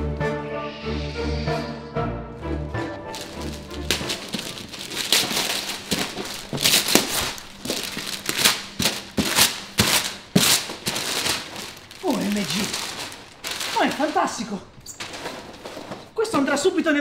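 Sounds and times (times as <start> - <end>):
wrapping paper tearing: 3.1 - 16.4.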